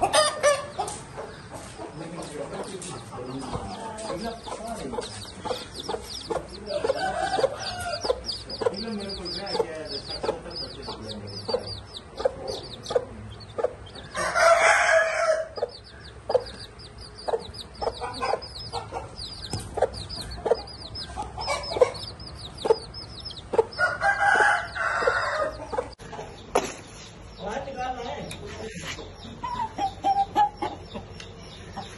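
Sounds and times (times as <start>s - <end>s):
chicks peeping: 0.0s - 31.9s
hen clucking: 0.0s - 31.9s
rooster crowing: 6.6s - 8.2s, 14.1s - 15.9s, 23.8s - 25.8s.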